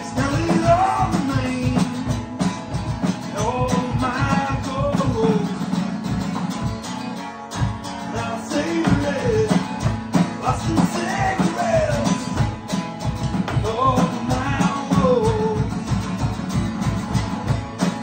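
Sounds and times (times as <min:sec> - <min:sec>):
man singing: 0:00.0 - 0:05.9, 0:08.0 - 0:12.6, 0:13.4 - 0:16.2
electronic drum beat: 0:00.0 - 0:18.0
strummed acoustic guitar: 0:00.0 - 0:18.0.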